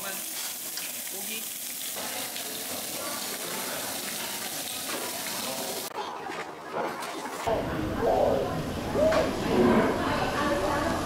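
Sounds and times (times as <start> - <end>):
beef sizzling on grill: 0.0 - 5.9.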